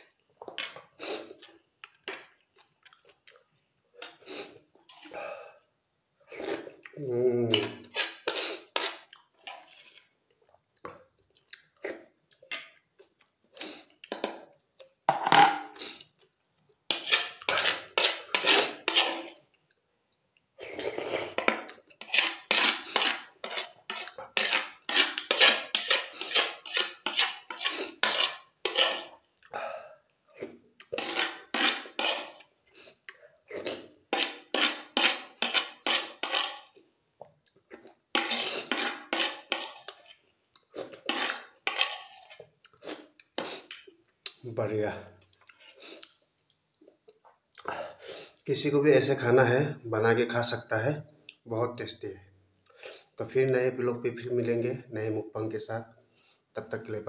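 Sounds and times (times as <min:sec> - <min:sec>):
cutlery scraping a plastic plate: 0:07.6 - 0:10.1, 0:16.9 - 0:19.4, 0:21.3 - 0:29.2, 0:30.9 - 0:32.5, 0:34.1 - 0:36.8, 0:38.1 - 0:40.2, 0:40.8 - 0:42.5.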